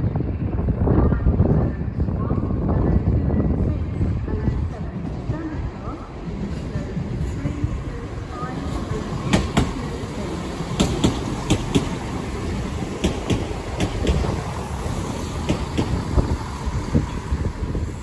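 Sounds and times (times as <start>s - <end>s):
train rumbling: 0.0s - 18.0s
train wheels clicking over rail joints: 8.7s - 17.0s.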